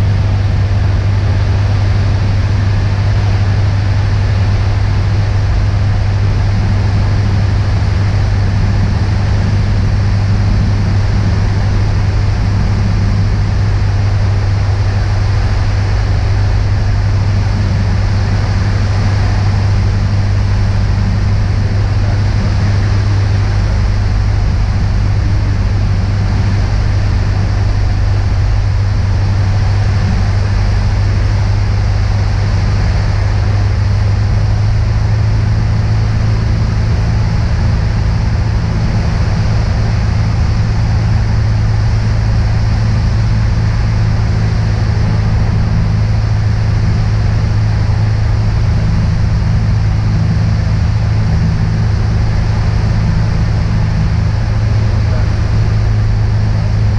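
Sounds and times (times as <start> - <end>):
propeller plane engine drone: 0.0 - 56.9.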